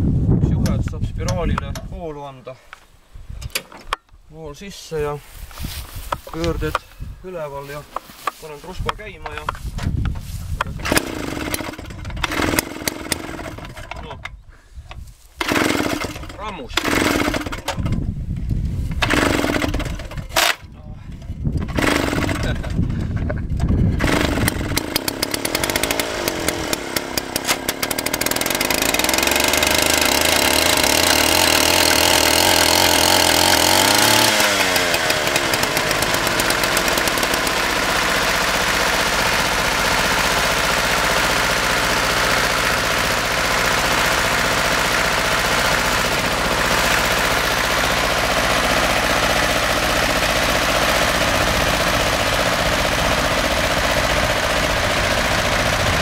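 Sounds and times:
small two-stroke engine revving: 0:10.8 - 0:13.9, 0:15.4 - 0:18.0, 0:19.0 - 0:20.6, 0:21.6 - 0:23.2, 0:23.8 - 0:56.0
tractor diesel engine idling: 0:34.6 - 0:56.0.

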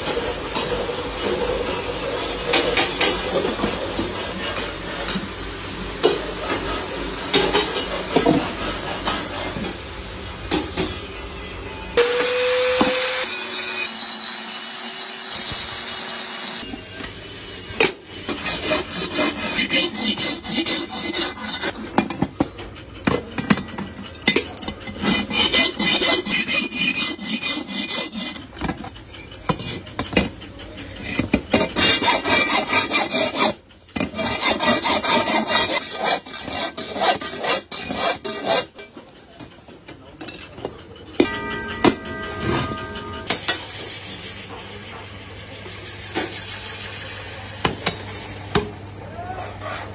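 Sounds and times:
angle grinder grinding metal: 0:12.0 - 0:16.6, 0:18.3 - 0:21.8, 0:25.0 - 0:28.7, 0:31.7 - 0:38.7
hand file rasping on metal: 0:18.3 - 0:21.8, 0:24.9 - 0:28.5, 0:31.5 - 0:38.8.

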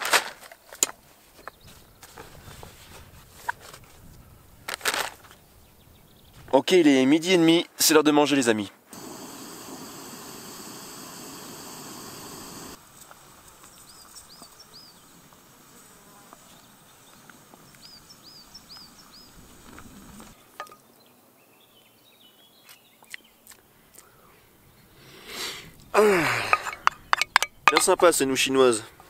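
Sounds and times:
gas stove hissing: 0:08.9 - 0:20.4.

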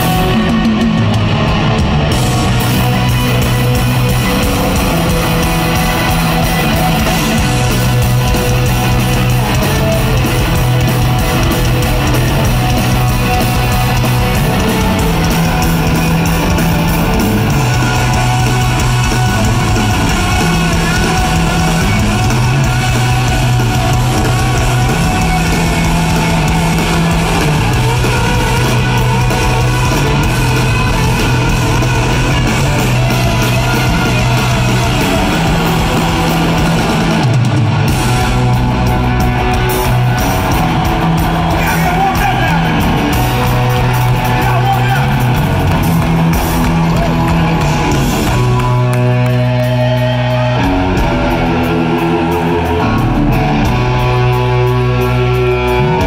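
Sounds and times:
live rock band playing: 0:00.0 - 0:56.0.

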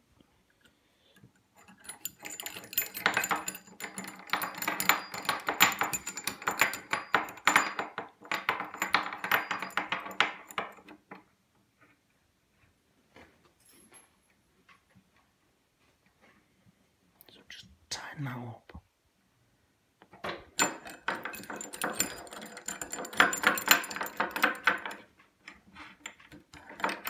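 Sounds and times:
metallic clicking and rattling: 0:01.6 - 0:11.2, 0:20.2 - 0:27.0.

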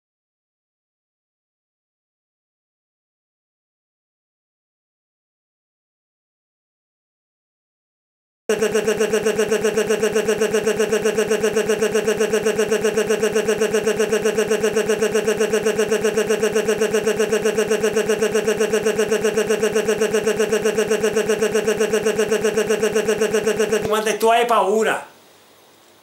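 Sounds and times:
looping digital buzzing stutter: 0:08.5 - 0:24.2.

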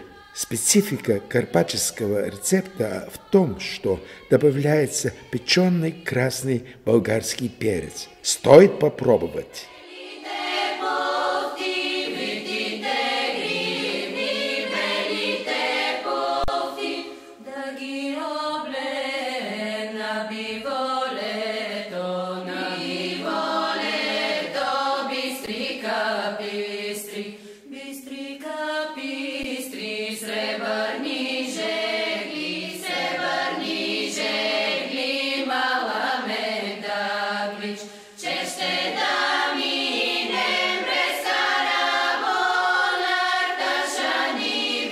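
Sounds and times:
choir singing: 0:00.0 - 0:44.9.

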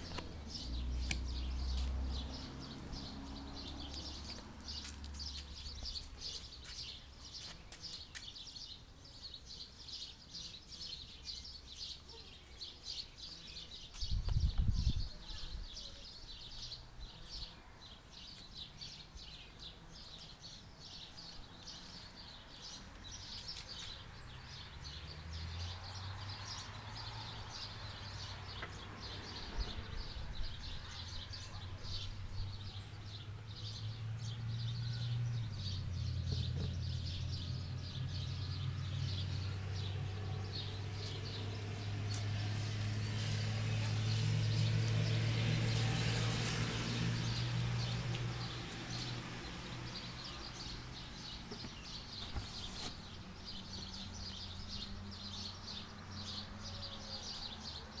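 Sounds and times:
low engine hum: 0:00.0 - 0:06.6, 0:24.2 - 0:56.2
small birds chirping: 0:00.0 - 0:58.0.

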